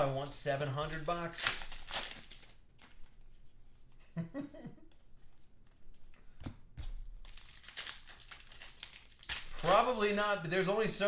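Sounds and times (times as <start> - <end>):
foil wrapper crinkling and tearing: 0.2 - 3.3, 6.9 - 10.4
cards being shuffled: 0.6 - 4.1, 4.9 - 10.4.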